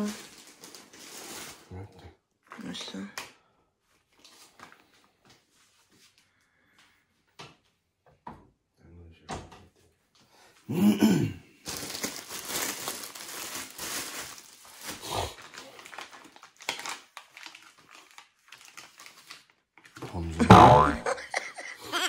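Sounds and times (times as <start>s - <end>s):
wrapper crinkling and rustling: 0.0s - 1.7s, 11.6s - 20.3s
short voice-like sound: 20.0s - 21.0s.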